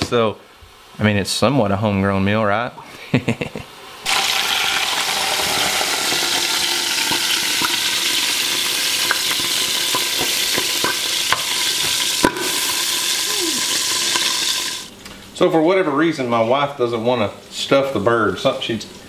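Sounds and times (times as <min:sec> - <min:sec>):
chicken sizzling in hot oil: 0:04.0 - 0:14.9.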